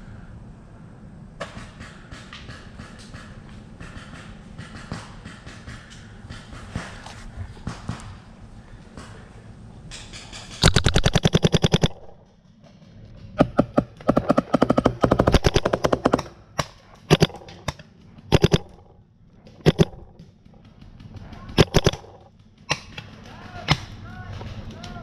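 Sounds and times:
paintball markers firing: 10.2s - 12.3s, 13.4s - 18.9s, 19.5s - 23.9s.

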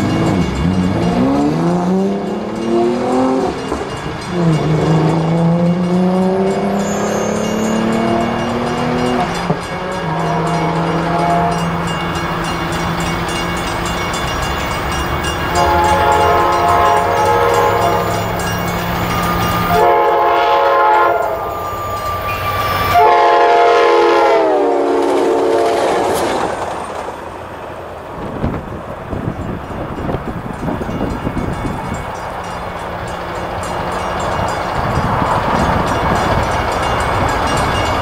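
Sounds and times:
train horn blowing: 6.2s - 8.4s, 9.2s - 12.0s, 15.5s - 18.5s, 19.5s - 26.0s.

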